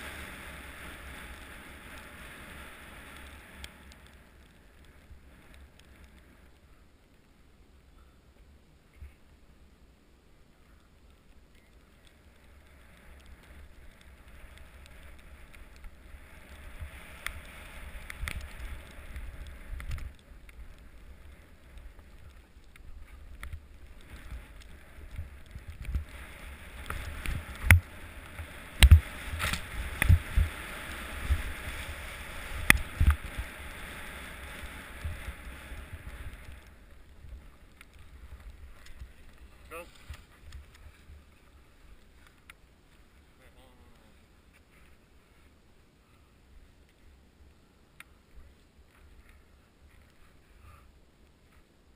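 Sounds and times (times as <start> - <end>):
ski scraping over snow: 0.0 - 6.6, 12.2 - 46.2
wind on microphone: 14.0 - 41.4.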